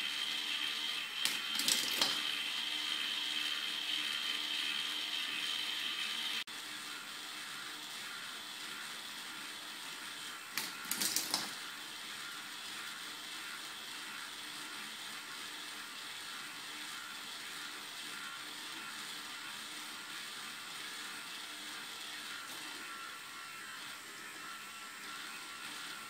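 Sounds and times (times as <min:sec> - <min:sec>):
plastic gears whirring: 0:00.0 - 0:26.0
plastic ball rattling: 0:01.3 - 0:02.2, 0:10.6 - 0:11.6.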